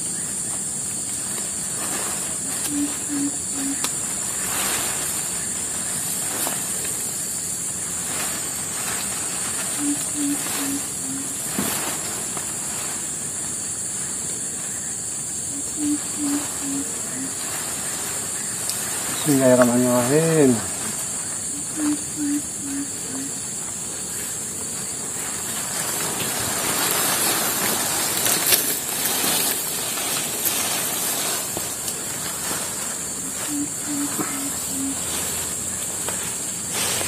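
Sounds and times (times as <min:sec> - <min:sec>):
high-pitched insect drone: 0:00.0 - 0:37.0
faint rustles of raincoat: 0:01.2 - 0:03.0, 0:03.6 - 0:14.5, 0:24.0 - 0:37.0
bird hooting call: 0:02.4 - 0:05.7, 0:09.4 - 0:11.8, 0:15.5 - 0:18.2, 0:21.4 - 0:23.4, 0:33.2 - 0:35.5.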